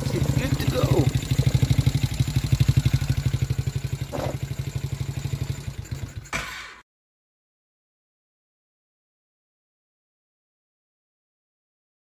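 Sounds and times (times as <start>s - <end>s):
small engine idling: 0.0s - 6.8s.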